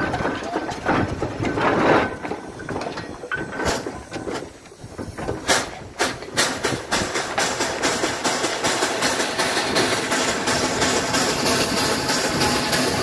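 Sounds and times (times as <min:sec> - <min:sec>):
steam engine exhaust beats: 0:00.0 - 0:13.0
steam hissing: 0:03.4 - 0:13.0.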